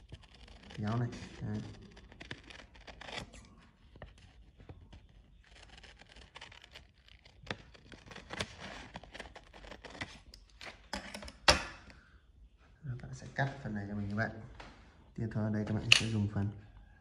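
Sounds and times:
paper rustling: 0.0 - 11.0
scissors snipping paper: 0.0 - 11.1.

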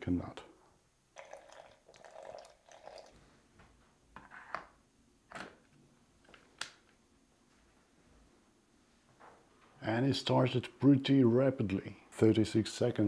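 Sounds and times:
water pouring in thin stream: 1.2 - 3.1.

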